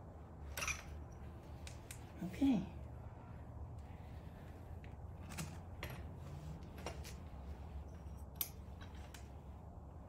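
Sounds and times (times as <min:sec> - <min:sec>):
light metallic clicks and rattles: 0:04.8 - 0:09.5.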